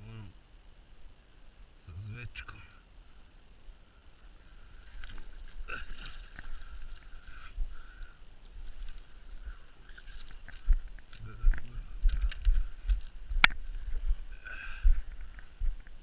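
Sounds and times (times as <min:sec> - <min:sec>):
footsteps on gravel: 0:08.5 - 0:15.9.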